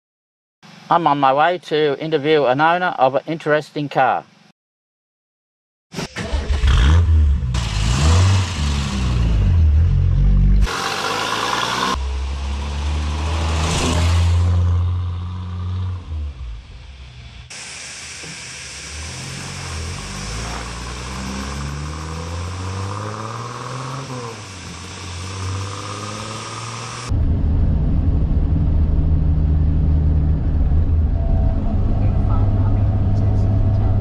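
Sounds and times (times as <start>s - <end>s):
car engine starting and revving: 6.0s - 17.5s, 18.8s - 34.0s
car driving off: 6.1s - 17.5s, 18.8s - 34.0s.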